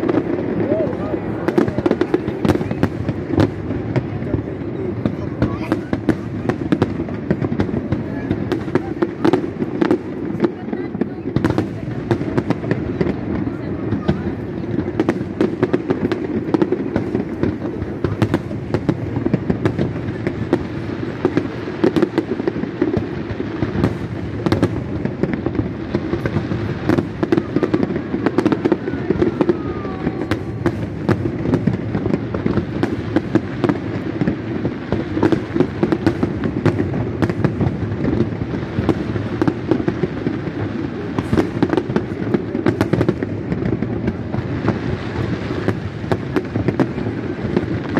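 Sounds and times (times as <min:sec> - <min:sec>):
firework crackles and bangs: 0:00.0 - 0:47.9
fireworks booming rumble: 0:00.0 - 0:47.9.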